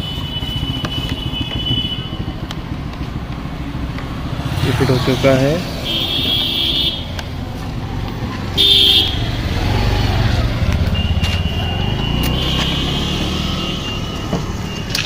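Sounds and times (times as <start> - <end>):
vehicle horn toot: 0.0 - 2.3, 5.8 - 7.1, 8.6 - 9.6, 10.8 - 15.0
motorcycle engine idling: 0.0 - 14.9.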